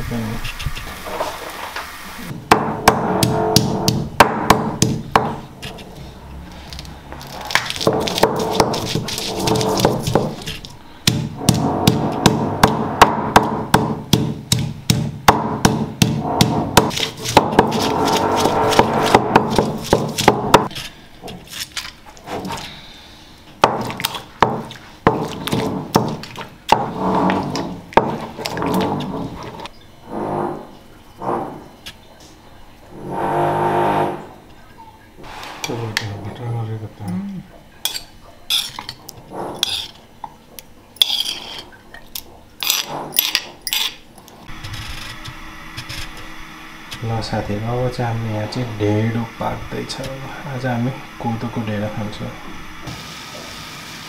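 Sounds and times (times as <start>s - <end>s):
stone pestle knocking on stone: 2.5s - 5.4s, 11.1s - 20.7s
metal spoon scraping stone: 16.9s - 19.2s, 37.9s - 40.0s, 41.0s - 41.7s, 42.6s - 44.0s
steady low hum: 22.3s - 53.5s.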